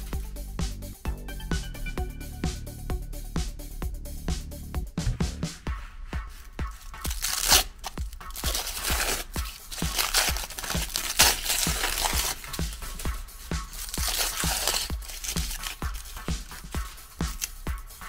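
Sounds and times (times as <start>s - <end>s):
electronic dance music: 0.0s - 7.3s, 8.0s - 18.0s
aluminium foil crinkling: 6.8s - 17.8s.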